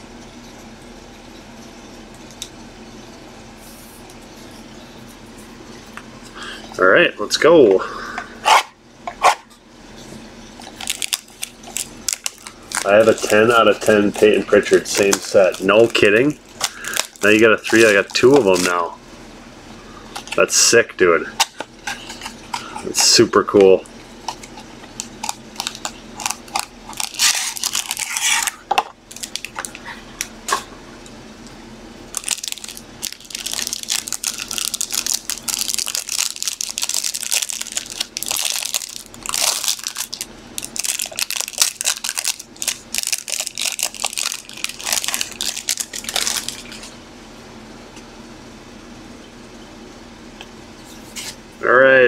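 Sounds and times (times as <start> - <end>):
plastic card sleeves crinkling: 10.6 - 18.8, 24.1 - 30.3, 32.1 - 47.0.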